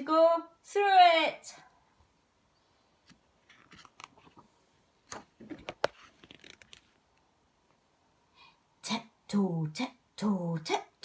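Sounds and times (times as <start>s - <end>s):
book page turning: 3.0s - 4.5s, 5.1s - 7.0s.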